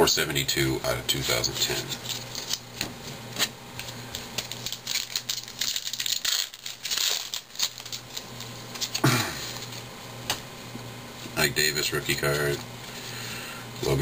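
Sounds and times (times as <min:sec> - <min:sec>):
foil wrapper crinkling: 0:01.6 - 0:09.9.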